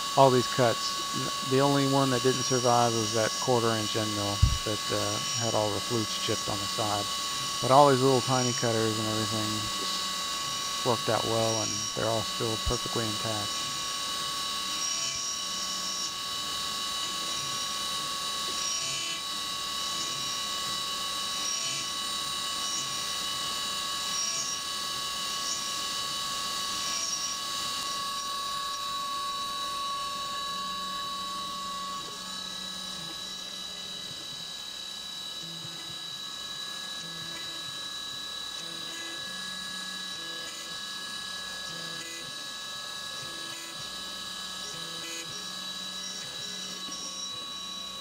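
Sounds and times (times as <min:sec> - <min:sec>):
coolant hiss: 0:00.0 - 0:24.6
milling machine whine: 0:00.0 - 0:48.0.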